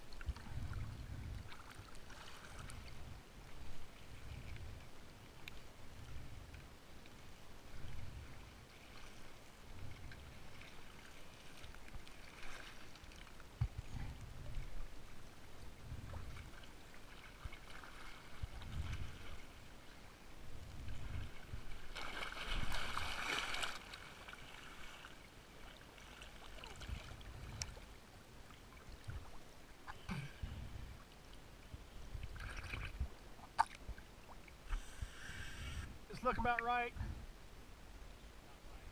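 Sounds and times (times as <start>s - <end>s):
lake water lapping: 0.0s - 37.0s
soft low thumps: 13.6s - 14.8s
water splash: 21.8s - 24.5s, 32.4s - 33.9s.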